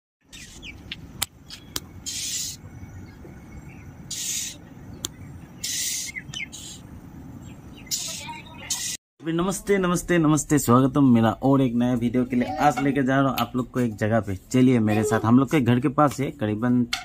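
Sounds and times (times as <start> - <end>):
birds chirping: 0.2 - 9.0
low steady background noise: 0.4 - 17.0
short high hissing bursts: 2.0 - 2.6, 4.1 - 4.6, 5.6 - 6.8.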